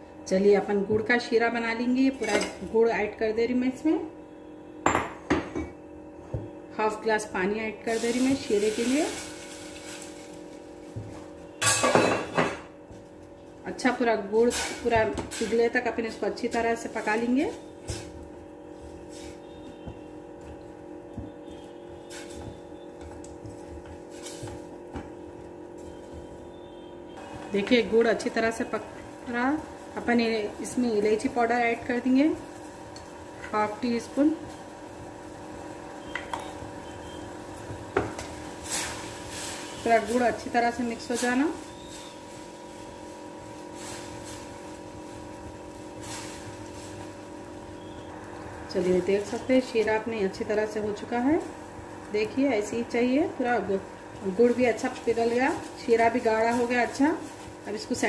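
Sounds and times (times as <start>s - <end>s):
steady hum: 0.0s - 58.0s
syrup boiling in a pot: 17.0s - 58.0s.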